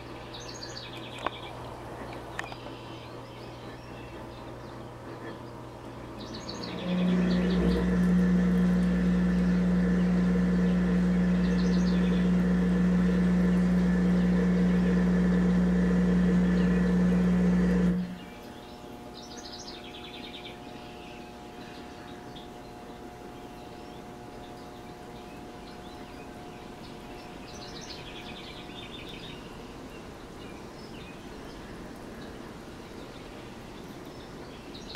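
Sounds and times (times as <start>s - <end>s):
motor humming: 0.0s - 30.2s
bird chirps: 2.3s - 8.2s, 9.3s - 15.6s, 18.1s - 31.6s.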